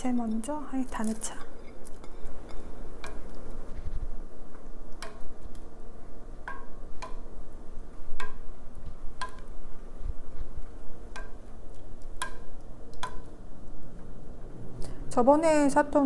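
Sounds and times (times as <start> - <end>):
wooden spoon tapping metal pot: 0.0 - 3.4, 6.4 - 7.3, 8.1 - 8.5, 9.2 - 9.5, 11.1 - 11.5, 12.1 - 13.3.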